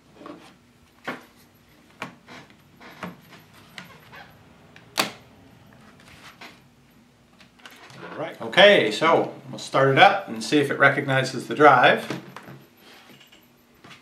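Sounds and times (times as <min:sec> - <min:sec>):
battery snapping into place: 0:04.9 - 0:05.2.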